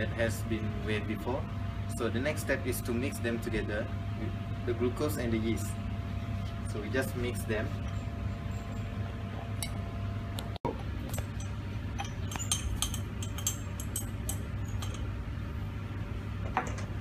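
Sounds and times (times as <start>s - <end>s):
low hum: 0.0s - 17.0s
glass beakers clinking: 11.1s - 15.1s.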